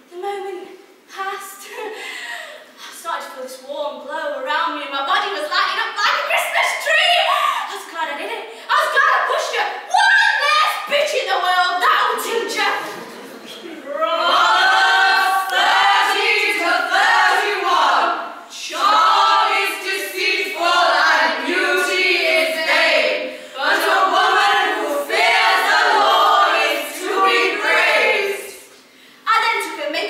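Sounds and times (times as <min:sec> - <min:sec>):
women singing together: 0:13.9 - 0:28.7.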